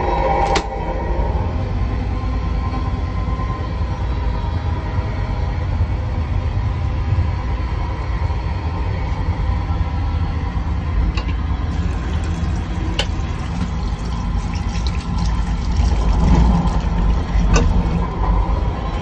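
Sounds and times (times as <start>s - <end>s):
low rumble of moving train coach: 0.0s - 19.0s
tap water running into steel sink: 11.7s - 18.2s.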